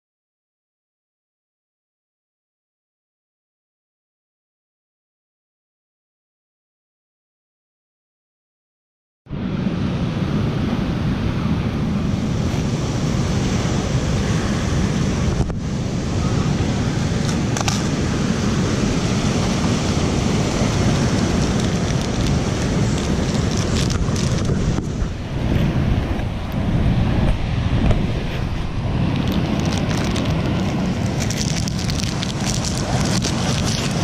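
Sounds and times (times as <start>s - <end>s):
wind buffeting microphone: 9.3s - 34.0s
surf breaking on rocks: 12.0s - 34.0s
snack wrapper rustling: 21.1s - 24.6s, 29.1s - 34.0s.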